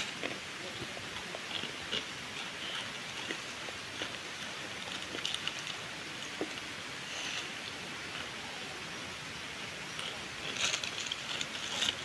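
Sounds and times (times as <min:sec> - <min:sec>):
dry noodles crackling: 0:00.0 - 0:07.6, 0:10.0 - 0:12.0.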